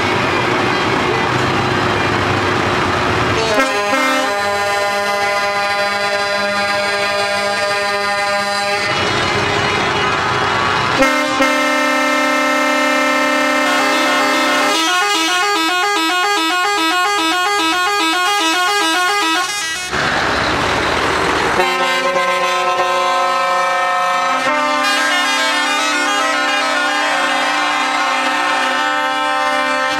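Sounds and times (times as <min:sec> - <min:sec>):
musical air horns playing tune: 0:03.5 - 0:09.0, 0:11.0 - 0:19.9, 0:21.6 - 0:29.9.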